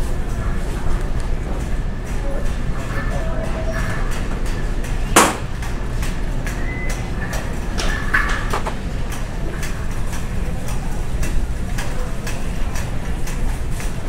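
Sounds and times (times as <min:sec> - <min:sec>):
sharp knock: 0:05.2 - 0:05.5.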